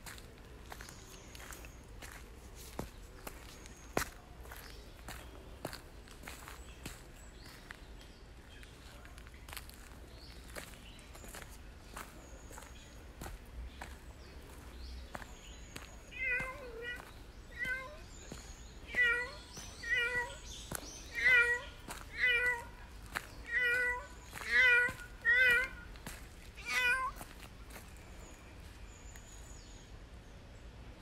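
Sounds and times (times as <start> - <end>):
cat meowing: 16.1 - 18.0, 18.8 - 20.4, 21.0 - 22.8, 23.4 - 25.9, 26.6 - 27.2.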